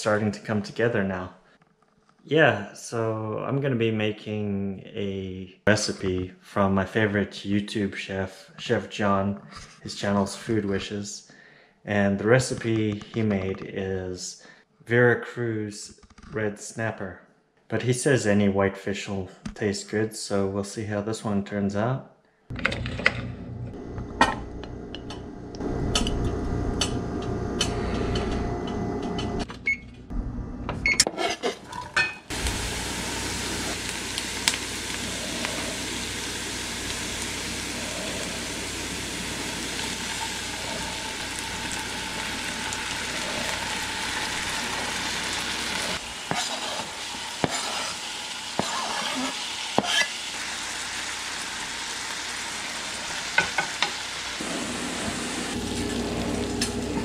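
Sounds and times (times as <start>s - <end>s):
wooden spoon stirring in pan: 31.2s - 50.2s
vegetables sizzling in oil: 31.7s - 57.0s.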